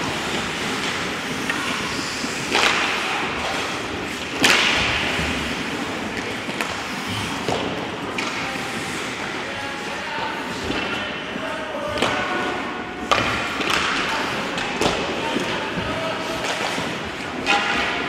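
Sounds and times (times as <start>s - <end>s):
skate blades scraping ice: 0.0s - 12.8s
stick and puck cracks: 2.2s - 5.2s, 13.1s - 15.5s.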